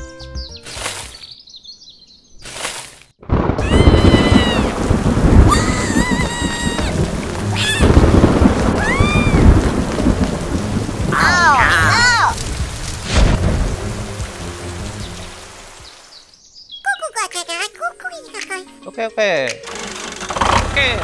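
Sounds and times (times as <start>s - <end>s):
rumbling thunder: 3.2s - 15.1s
heavy rain: 3.2s - 16.2s.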